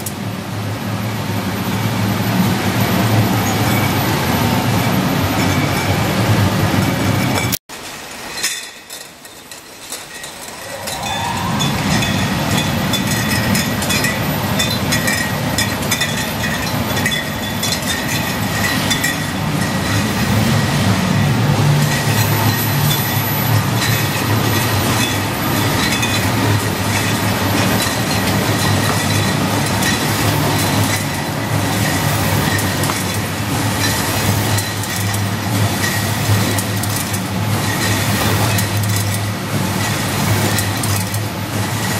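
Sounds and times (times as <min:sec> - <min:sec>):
low machine hum: 0:10.2 - 0:41.9
packing machine clatter: 0:12.4 - 0:41.9.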